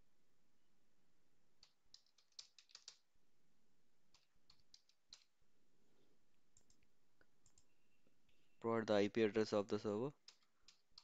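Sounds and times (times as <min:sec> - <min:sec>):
faint keyboard typing: 0:01.6 - 0:03.1, 0:04.1 - 0:05.4, 0:06.5 - 0:08.5, 0:09.4 - 0:11.0.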